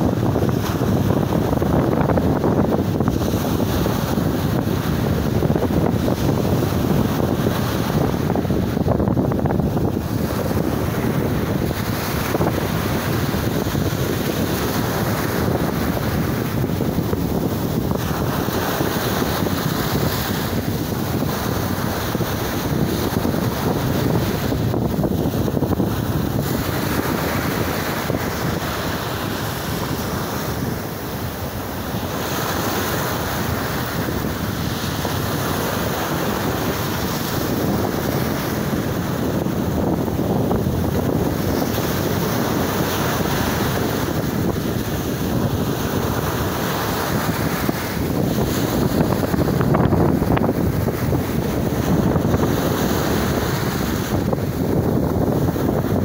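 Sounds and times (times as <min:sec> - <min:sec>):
waves breaking on beach: 0:00.0 - 0:56.0
wind buffeting microphone: 0:00.0 - 0:56.0.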